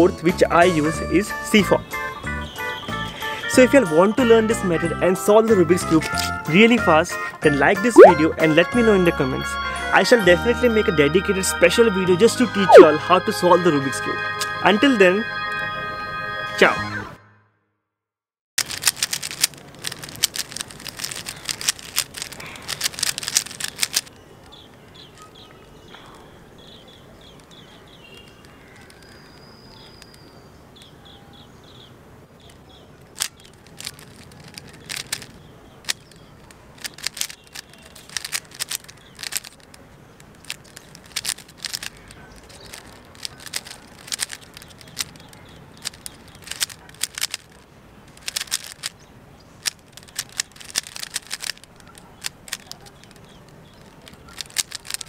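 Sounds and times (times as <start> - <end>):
plastic puzzle cube clicking: 18.6 - 24.7, 27.3 - 30.2, 32.4 - 49.0, 49.6 - 55.0
birds chirping: 23.6 - 55.0.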